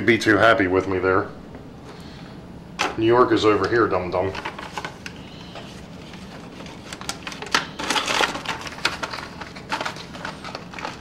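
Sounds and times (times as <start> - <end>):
cardboard rustling: 4.2 - 11.0.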